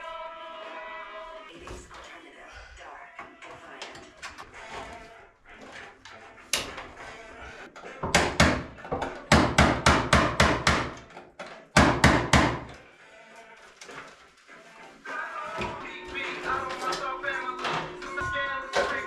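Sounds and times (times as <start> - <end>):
hammer knocks: 8.0 - 11.0.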